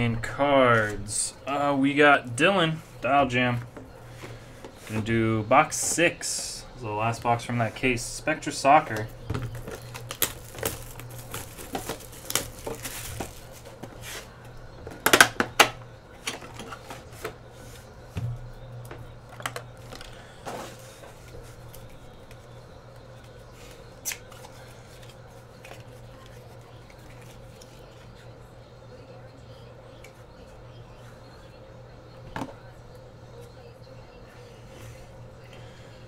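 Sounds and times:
low steady hum: 0.0 - 36.0
shrink-wrap crackling and tearing: 9.5 - 13.7.

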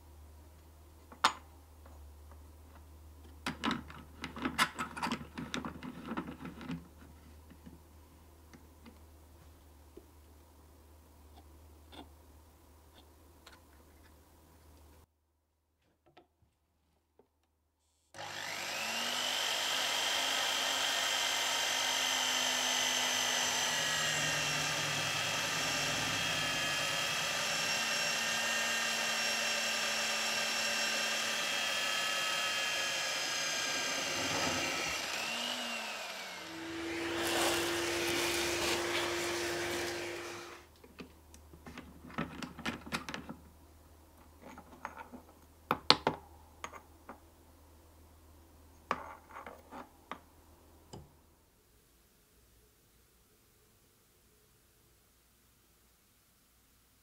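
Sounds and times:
drill press drilling steel: 18.2 - 40.6.

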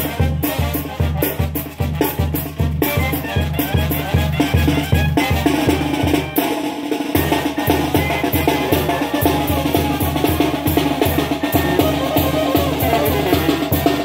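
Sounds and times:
brass band playing dance tune: 0.0 - 14.0
bass drum beat: 7.2 - 14.0.

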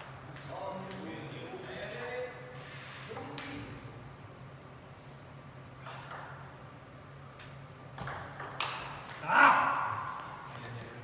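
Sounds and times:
table tennis ball clicks: 8.0 - 10.8.

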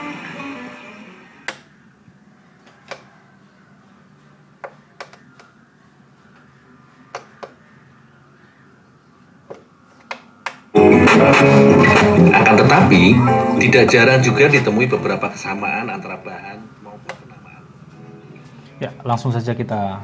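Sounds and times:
background music: 0.0 - 1.4, 10.7 - 16.7, 17.3 - 19.2
television push buttons clicking: 1.4 - 1.7, 2.6 - 3.1, 4.6 - 5.5, 7.1 - 7.6.

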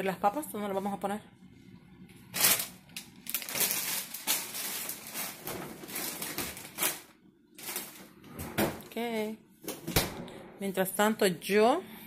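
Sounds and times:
plastic bag crinkling: 2.3 - 8.1.

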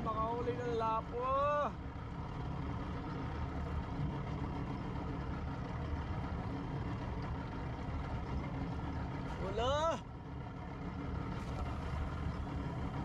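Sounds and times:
boat engine idling: 0.0 - 13.0.

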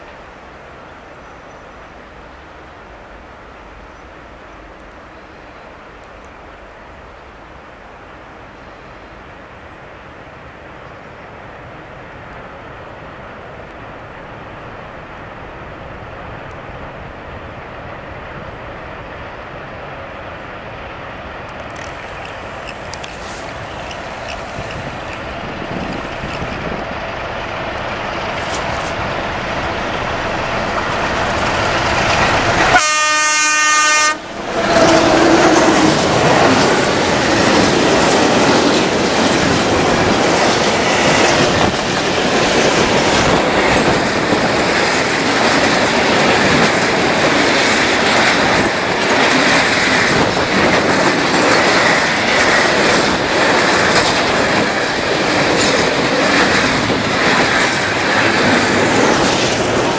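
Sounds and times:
freight train passing: 0.0 - 59.9
wheels clacking over rail joints: 21.5 - 32.8, 34.4 - 59.9
locomotive horn blast: 32.6 - 35.8.

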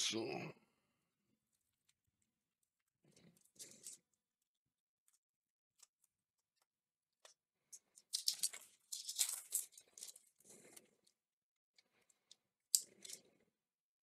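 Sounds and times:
onion skin crackling and rustling: 8.0 - 10.8.

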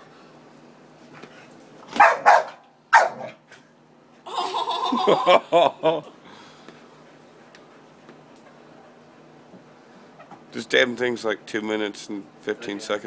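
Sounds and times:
dog barking and yelping: 1.9 - 3.4.

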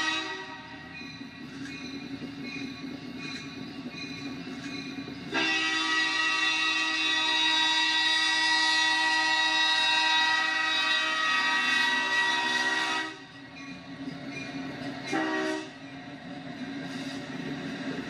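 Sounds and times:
locomotive horn chord: 0.0 - 0.7, 5.3 - 13.2, 15.1 - 15.8
passing locomotives rumbling: 0.0 - 18.0.

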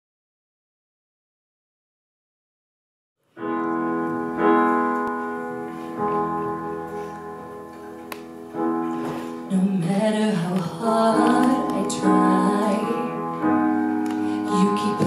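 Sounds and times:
piano chords: 3.2 - 15.0
woman singing: 9.5 - 13.5, 14.3 - 15.0.

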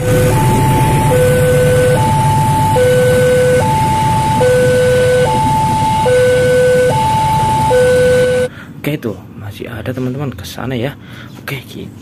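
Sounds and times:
two-tone crossing alarm: 0.0 - 8.5.

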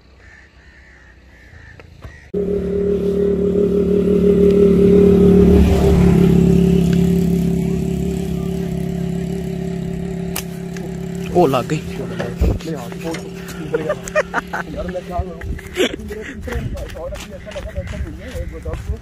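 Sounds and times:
faint crow calls: 0.0 - 3.4, 13.0 - 14.1, 17.1 - 19.0
motorcycle engine running: 2.3 - 18.6.

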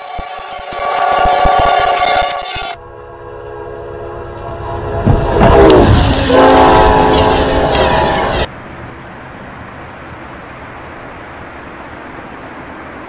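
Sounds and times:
locomotive horn: 0.0 - 8.5
train rushing past: 0.0 - 13.0.

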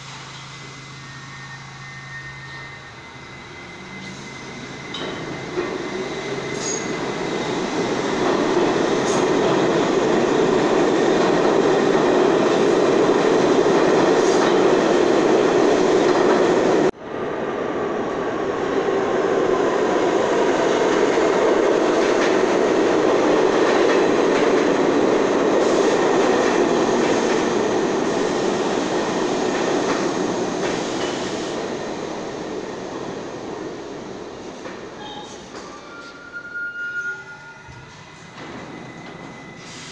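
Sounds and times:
subway train rumbling on rails: 0.0 - 39.9
faint wheel squeal: 0.3 - 5.0, 35.0 - 39.9.

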